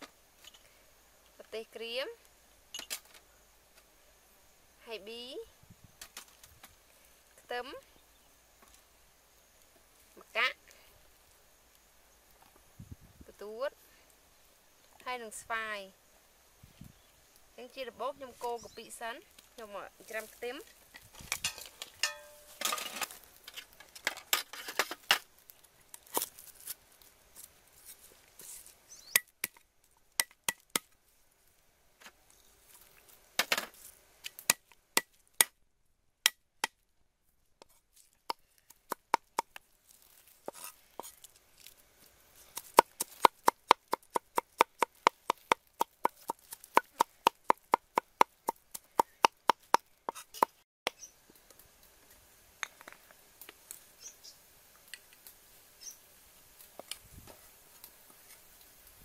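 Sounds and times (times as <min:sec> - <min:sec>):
cleaver chopping on wooden block: 0:42.6 - 0:50.6.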